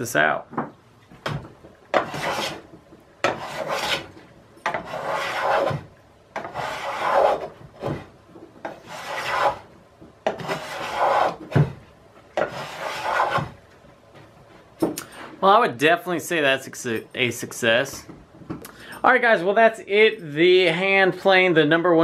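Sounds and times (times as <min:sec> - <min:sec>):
block plane shaving wood: 0:01.9 - 0:09.7, 0:10.3 - 0:11.7, 0:12.4 - 0:13.6.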